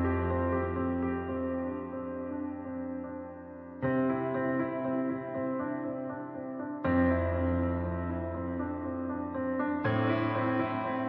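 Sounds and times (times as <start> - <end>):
slow held chords music: 9.8 - 11.0.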